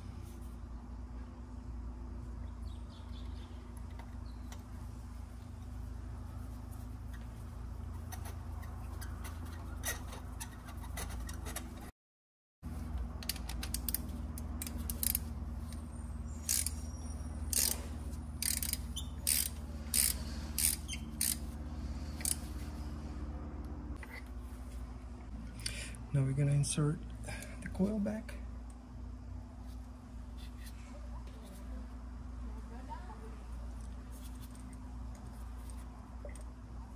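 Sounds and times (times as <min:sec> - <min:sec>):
steady low hum: 0:00.0 - 0:11.9, 0:12.6 - 0:36.9
ratchet wrench clicking: 0:13.2 - 0:15.8, 0:16.4 - 0:16.8, 0:17.5 - 0:17.8, 0:18.4 - 0:21.6, 0:22.2 - 0:22.5.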